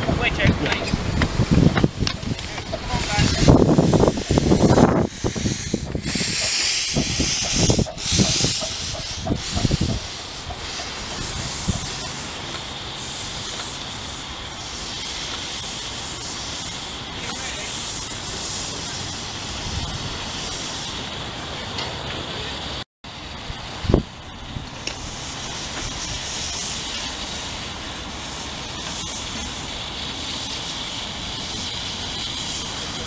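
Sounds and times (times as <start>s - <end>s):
steam hissing: 0.0s - 33.0s.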